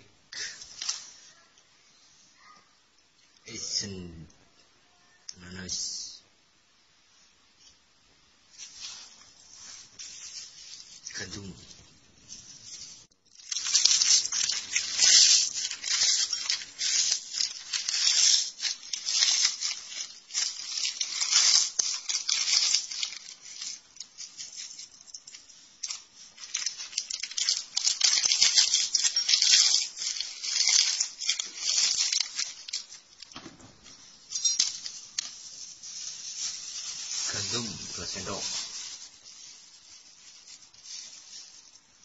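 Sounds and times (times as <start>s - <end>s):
crackers crackling: 8.4s - 42.0s
plastic wrapper crinkling: 8.5s - 42.0s.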